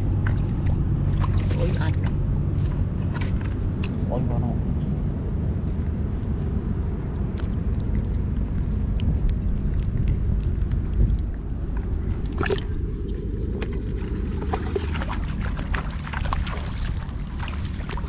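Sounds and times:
water splashing and dripping: 0.0s - 4.1s, 7.2s - 18.0s
steady low rumble: 0.0s - 18.0s.

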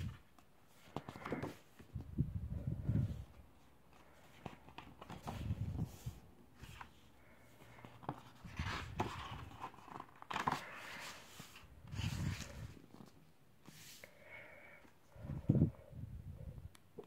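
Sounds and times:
paper pages rustling: 3.9s - 13.9s.

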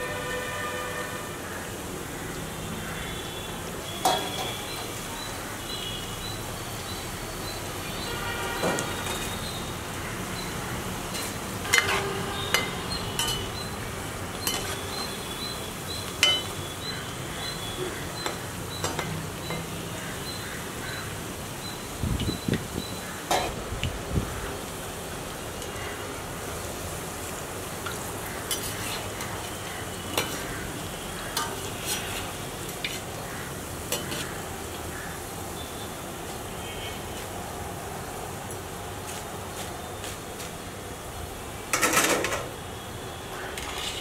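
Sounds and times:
oil sizzling: 0.0s - 36.5s
metal spoon clinking on pan: 11.2s - 13.6s, 16.2s - 16.6s.

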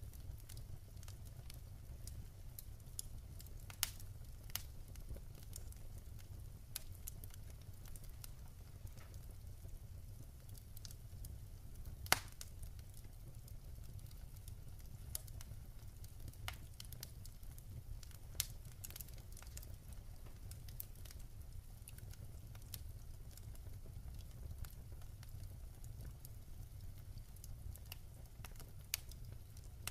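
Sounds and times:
wood fire crackling: 0.0s - 29.9s.

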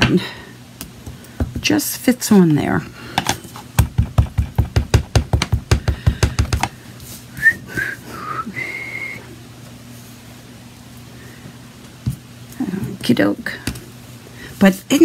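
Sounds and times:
rubber stamp tapping ink pad: 3.8s - 6.7s
person whistling: 7.4s - 9.3s.

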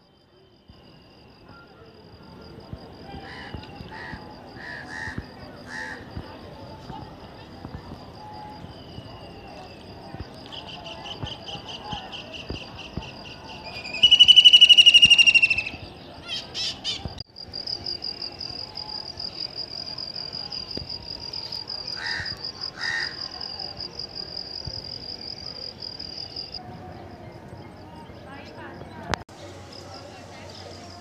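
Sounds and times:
high pulsing insect trill: 0.0s - 31.0s
bird trilled calls: 13.8s - 17.1s.

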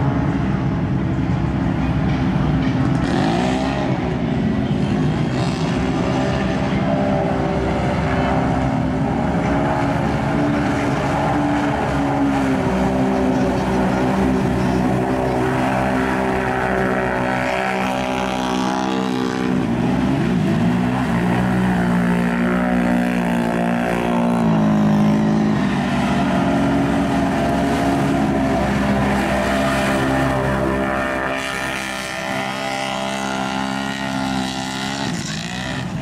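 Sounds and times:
churning through mud and water: 0.0s - 36.0s
atv engine at high revs: 3.0s - 4.0s, 5.1s - 36.0s.

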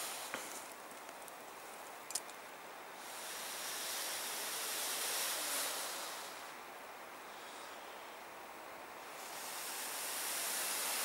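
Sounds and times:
dry grass rustling: 0.0s - 2.4s
small clicks: 0.3s - 2.4s.

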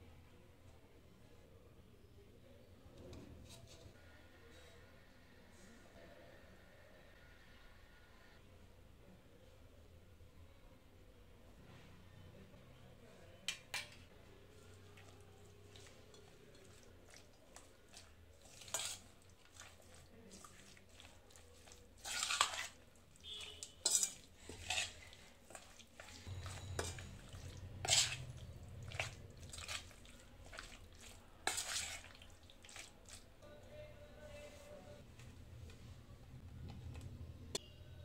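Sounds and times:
metal spoon scraping metal bowl: 14.6s - 33.2s.

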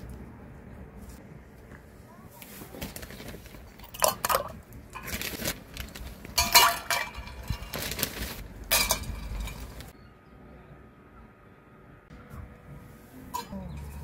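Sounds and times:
dishes and utensils clattering: 3.8s - 5.3s, 6.3s - 9.9s, 13.3s - 14.0s.

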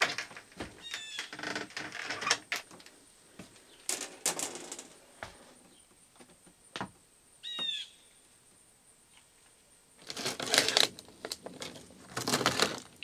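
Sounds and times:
bird chirps: 7.4s - 8.2s
rustling and handling noise: 10.0s - 13.0s.

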